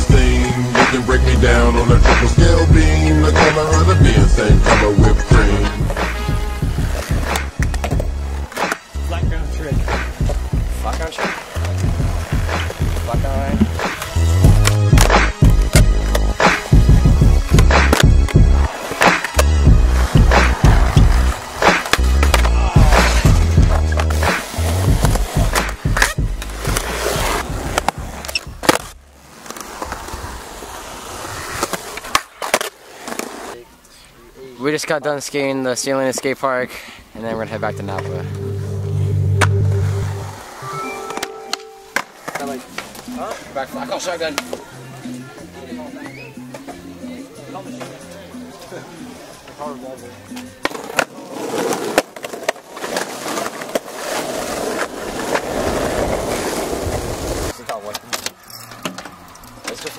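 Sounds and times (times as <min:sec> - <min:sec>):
skateboard wheels rolling on concrete: 0:00.0 - 0:33.9, 0:34.6 - 0:59.9
skateboard slapping the ground: 0:09.9 - 0:16.7, 0:17.4 - 0:33.6, 0:50.4 - 0:59.9
sharp skateboard clicks: 0:18.9 - 0:19.5, 0:20.4 - 0:23.2.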